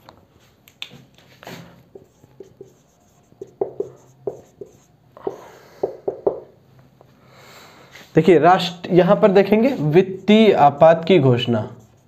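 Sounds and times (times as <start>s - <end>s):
marker pen writing on whiteboard: 1.8s - 6.5s, 9.3s - 12.0s.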